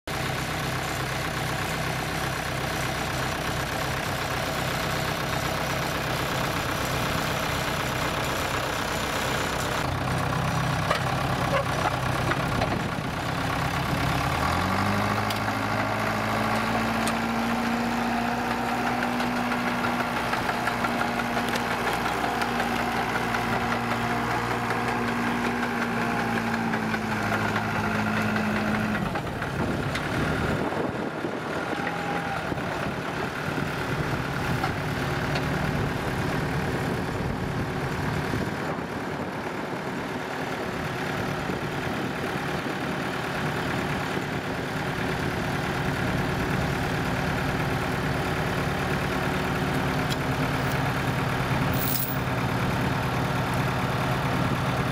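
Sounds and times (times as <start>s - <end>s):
loader engine revving: 0.1s - 38.6s.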